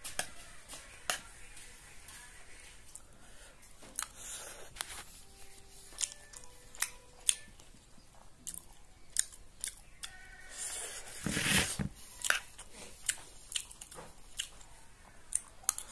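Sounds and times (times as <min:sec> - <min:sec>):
person chewing food: 0:03.8 - 0:15.9.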